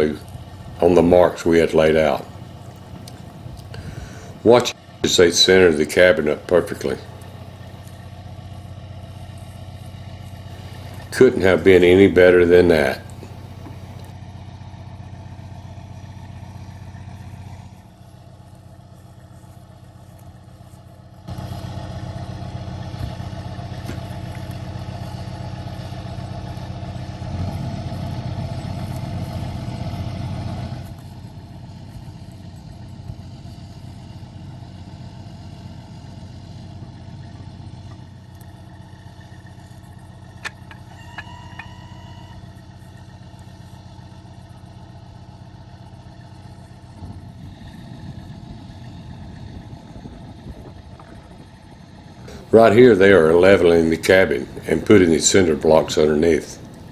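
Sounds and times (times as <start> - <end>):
truck diesel engine running: 0.0 - 56.9
short high tones: 40.9 - 42.4.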